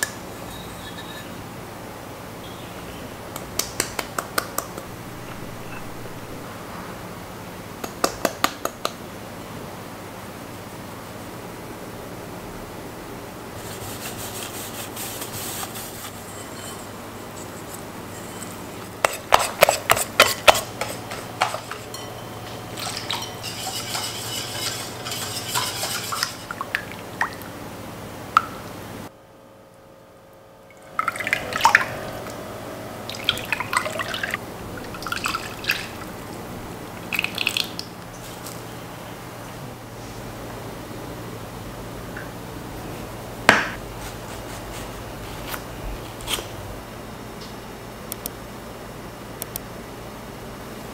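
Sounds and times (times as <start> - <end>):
batter being stirred: 13.6 - 27.4.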